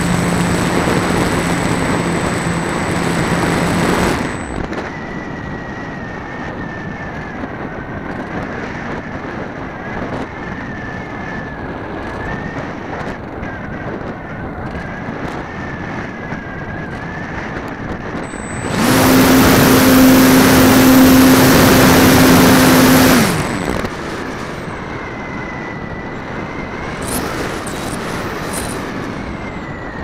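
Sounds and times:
model airplane motor droning: 0:00.0 - 0:07.0, 0:18.2 - 0:30.0.

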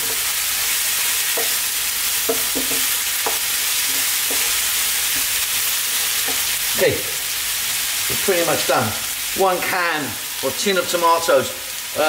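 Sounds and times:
food sizzling in a frying pan: 0:00.0 - 0:12.0
wooden spoon scraping a pan: 0:01.3 - 0:06.5.

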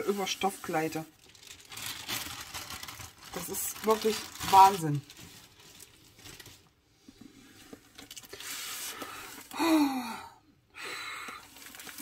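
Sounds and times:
canvas rustling and sliding: 0:00.0 - 0:06.6
person sighing: 0:09.5 - 0:11.4.

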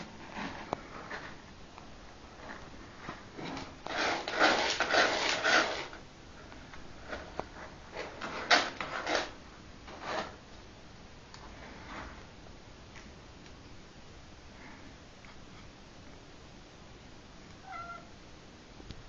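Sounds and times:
cat scratching in litter: 0:03.4 - 0:06.0, 0:07.0 - 0:10.4.

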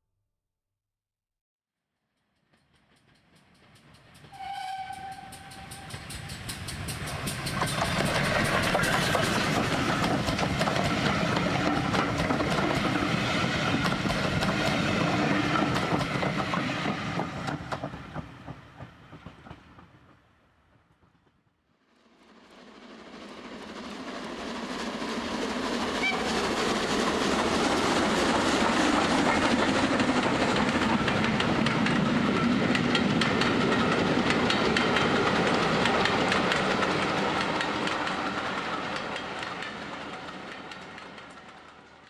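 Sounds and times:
train wheels clattering on rails: 0:02.4 - 0:20.2, 0:22.9 - 0:42.0.

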